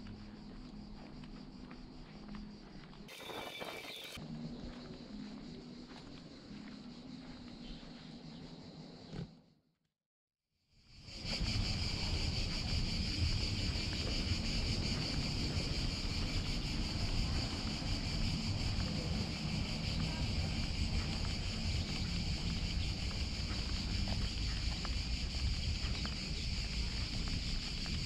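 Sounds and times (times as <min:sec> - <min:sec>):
wind buffeting microphone: 0:11.1 - 0:28.0.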